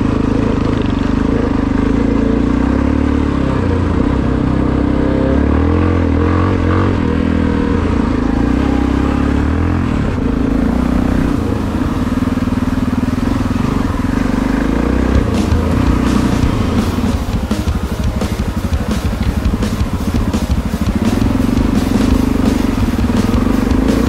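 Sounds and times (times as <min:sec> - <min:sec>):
motorcycle engine running: 0:00.0 - 0:24.0
sharp knocks: 0:15.2 - 0:24.0.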